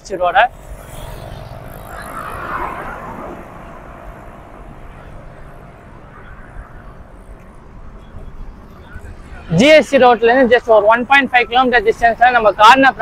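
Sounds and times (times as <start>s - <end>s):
highway traffic rumble: 0.0s - 13.0s
vehicle passing close by: 0.5s - 7.5s.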